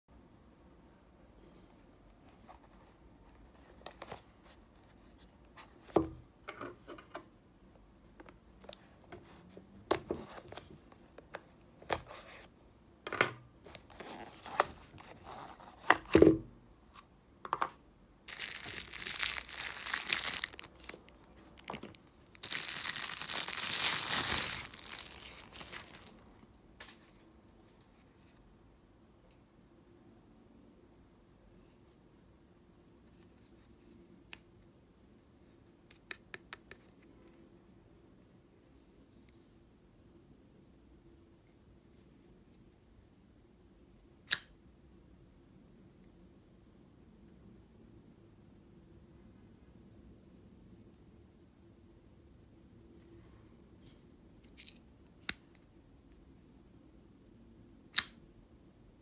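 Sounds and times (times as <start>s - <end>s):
knife unwrapped from packaging: 18.3s - 26.4s.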